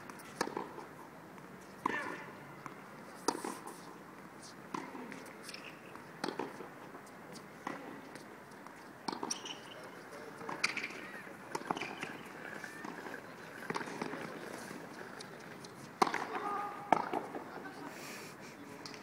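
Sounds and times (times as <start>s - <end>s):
tennis balls struck by rackets: 0.0s - 0.9s, 1.7s - 3.8s, 4.7s - 17.6s
murmur of voices: 9.8s - 18.8s.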